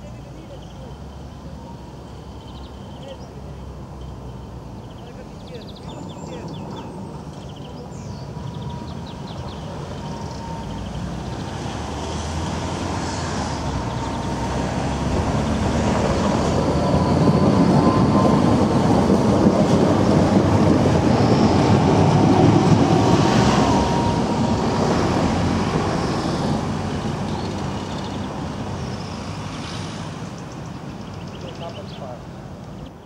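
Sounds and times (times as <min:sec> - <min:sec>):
tram rumbling past: 0:00.0 - 0:33.0.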